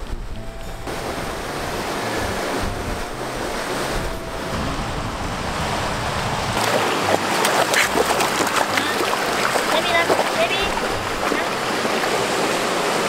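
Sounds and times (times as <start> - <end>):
stream water rushing: 0.0 - 13.0
dogs splashing in water: 0.9 - 13.0.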